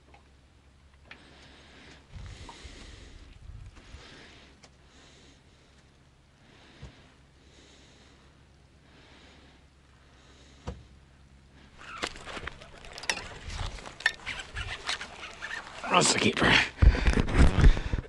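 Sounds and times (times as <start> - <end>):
close breathing: 1.1 - 10.7, 11.5 - 18.0
fishing reel clicks and rattles: 11.8 - 16.2.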